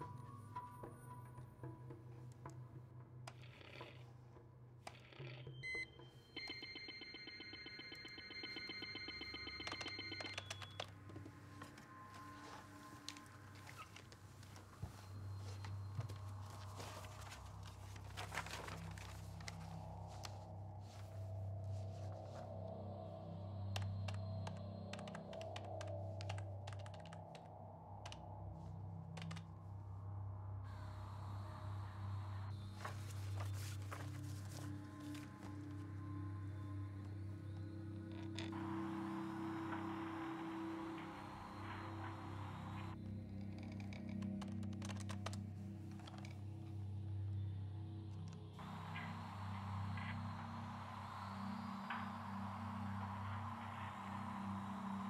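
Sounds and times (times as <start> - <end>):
low steady hum: 0.0 - 55.0
keyboard typing clicks: 4.9 - 12.3, 23.7 - 28.2
computer beeps: 5.5 - 11.0
soft clicks: 23.6 - 28.3.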